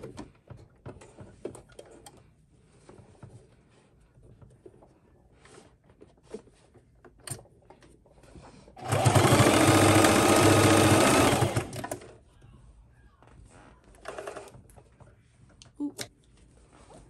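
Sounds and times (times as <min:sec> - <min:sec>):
sewing machine running: 0:08.8 - 0:12.1, 0:14.0 - 0:14.5.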